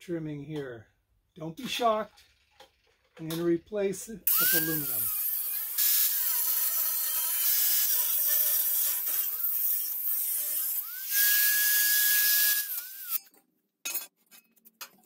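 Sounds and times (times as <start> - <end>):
angle grinder cutting steel: 4.3 - 13.3.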